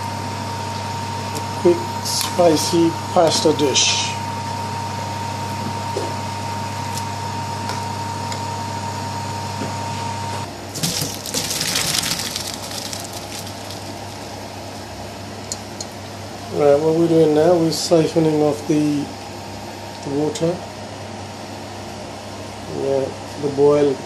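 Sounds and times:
steady hum with high tone: 0:00.0 - 0:24.0
hot water pouring into colander: 0:10.8 - 0:14.3.

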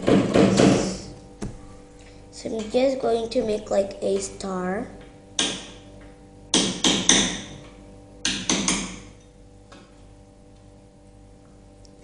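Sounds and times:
sharp knocks: 0:00.0 - 0:01.7, 0:06.5 - 0:07.6, 0:08.2 - 0:09.1.

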